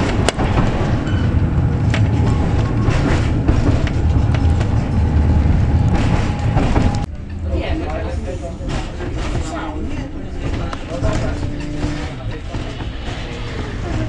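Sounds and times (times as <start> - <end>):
tram wheels rumbling on rails: 0.0 - 14.0.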